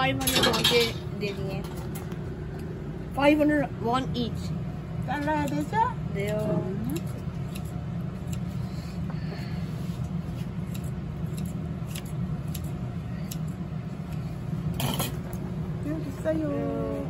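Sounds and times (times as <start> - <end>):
low background rumble: 0.0 - 17.0
scissors snipping: 5.4 - 8.5, 10.6 - 14.3.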